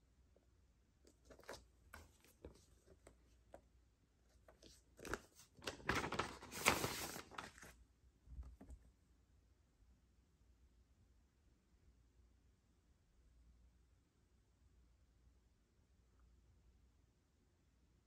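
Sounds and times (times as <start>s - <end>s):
paper record sleeve rustling: 1.1s - 3.6s, 4.3s - 7.8s.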